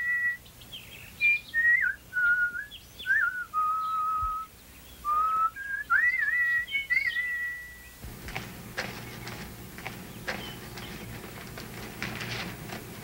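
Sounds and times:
person whistling a tune: 1.3s - 4.5s, 5.1s - 7.8s.

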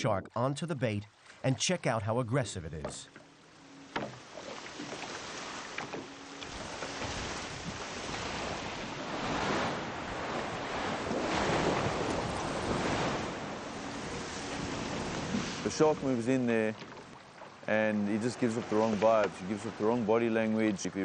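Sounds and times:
water splashing and churning: 0.0s - 21.0s
wind on microphone: 6.4s - 16.2s.

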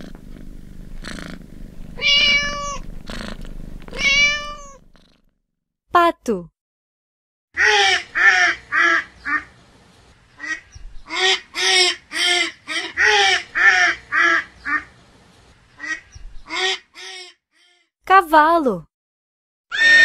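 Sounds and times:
duck quacking: 7.6s - 9.5s, 10.4s - 14.9s.

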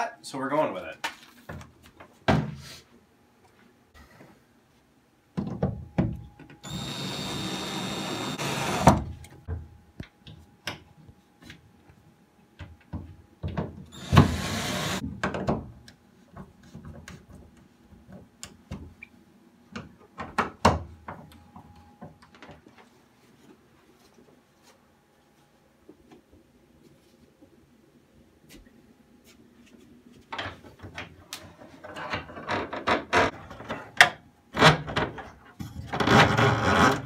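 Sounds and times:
cordless drill driving screws: 6.6s - 9.0s, 13.9s - 15.0s.

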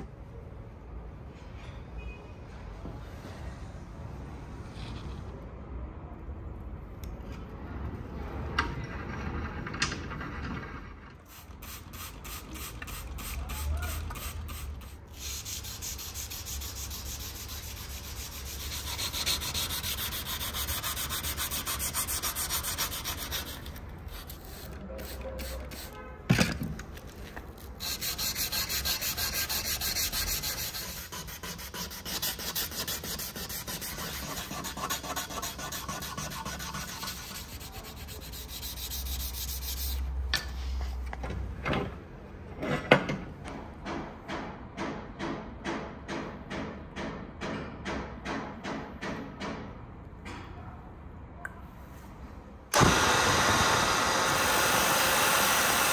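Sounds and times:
sandpaper rasping on knife blade: 11.4s - 26.0s, 27.6s - 40.1s.

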